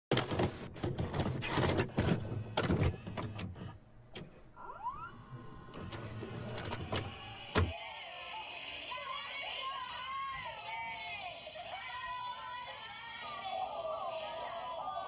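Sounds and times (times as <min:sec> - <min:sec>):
cassette player whirr: 0:00.1 - 0:07.7
tape loading clicks and clunks: 0:00.1 - 0:07.7.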